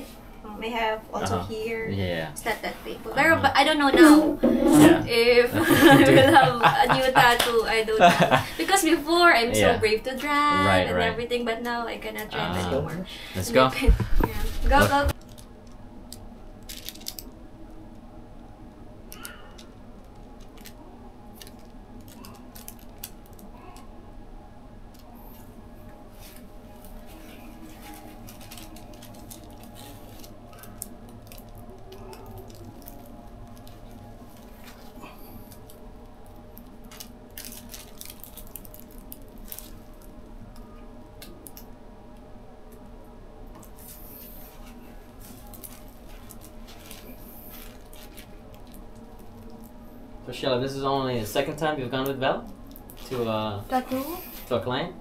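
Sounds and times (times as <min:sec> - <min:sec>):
steady low hum: 0:00.0 - 0:55.0
paper crinkling: 0:16.6 - 0:17.3, 0:19.2 - 0:23.8, 0:26.2 - 0:35.8, 0:36.5 - 0:40.1, 0:43.6 - 0:49.7.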